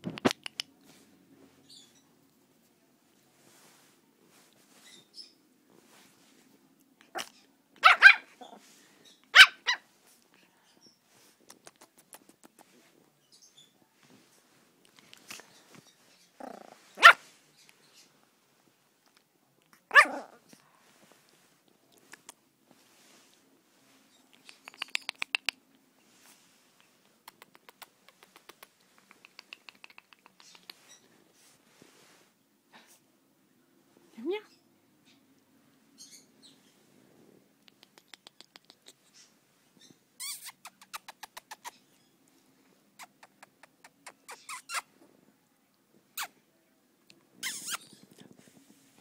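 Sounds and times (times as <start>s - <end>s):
puppy yipping and barking: 7.1s - 8.6s, 9.3s - 9.8s, 16.4s - 17.3s, 19.9s - 20.4s.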